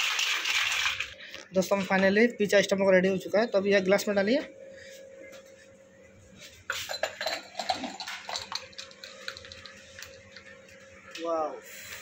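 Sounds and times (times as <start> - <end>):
iced tea pouring into glass: 0.0 - 1.2, 7.5 - 10.2
ice cubes clinking: 6.9 - 10.4.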